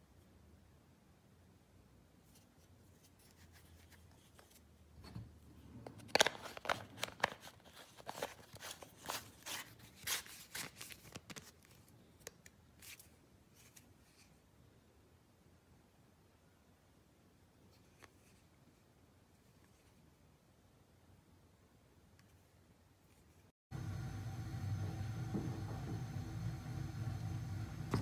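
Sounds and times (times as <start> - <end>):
plastic parts clicking and scraping: 4.3 - 9.2.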